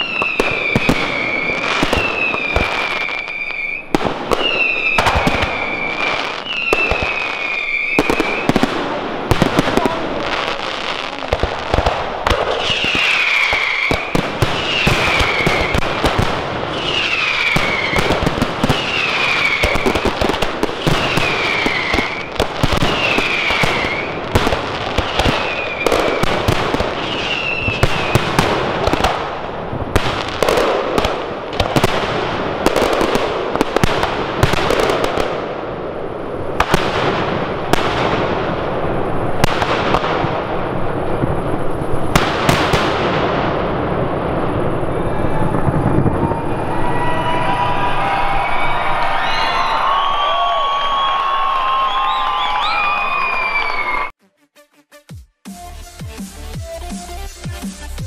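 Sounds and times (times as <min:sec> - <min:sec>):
whistling firework dropping in pitch: 0:00.0 - 0:08.7, 0:12.5 - 0:16.1, 0:16.7 - 0:24.2, 0:25.0 - 0:28.4, 0:44.9 - 0:54.2
fireworks bangs and crackling: 0:00.0 - 0:54.2.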